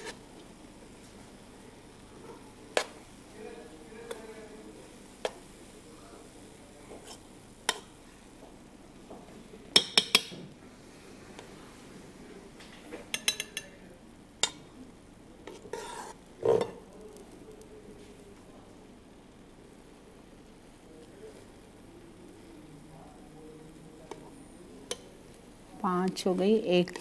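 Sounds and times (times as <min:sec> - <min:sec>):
utensil scraping in steel pot: 0:00.0 - 0:00.2, 0:15.4 - 0:16.7.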